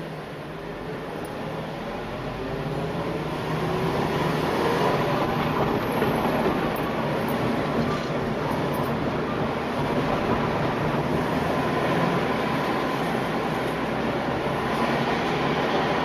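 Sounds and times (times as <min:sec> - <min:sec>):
road and motor noise: 0:00.0 - 0:16.0.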